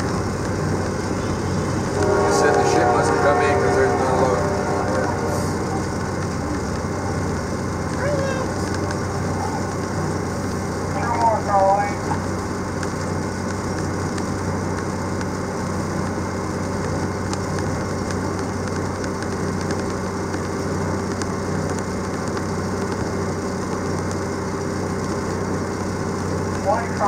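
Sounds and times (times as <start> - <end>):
diesel engine running: 0.0 - 27.0.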